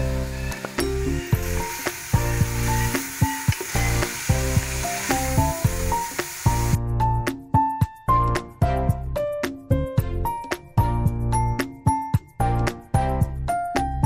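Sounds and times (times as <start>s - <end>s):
onions sizzling in oil: 0.0s - 6.8s
background music: 0.0s - 14.0s.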